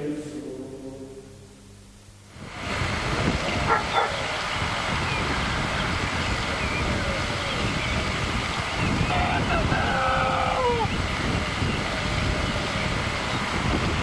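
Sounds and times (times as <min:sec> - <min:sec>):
steady rushing noise: 0:00.0 - 0:14.0
dogs barking: 0:03.6 - 0:04.3
faint calls: 0:05.8 - 0:11.1.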